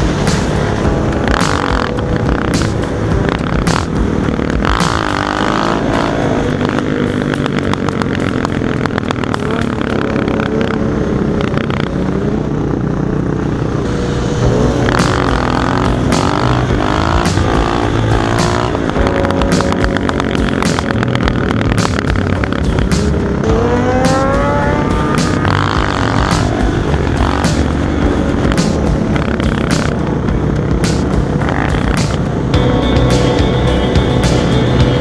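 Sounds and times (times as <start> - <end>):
motorcycle engines revving: 0.0 - 35.0.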